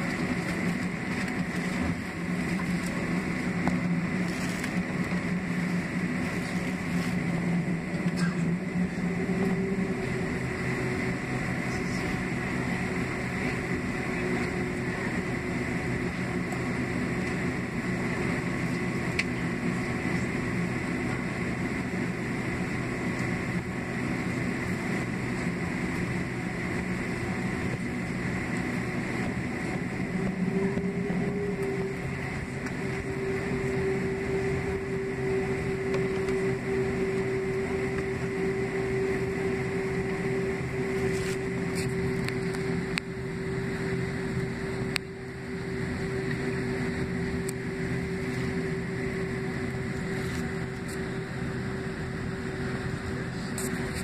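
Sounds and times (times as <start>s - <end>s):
deeper engine tone: 0.0s - 54.0s
high whine: 0.0s - 54.0s
jet engines humming: 0.0s - 54.0s.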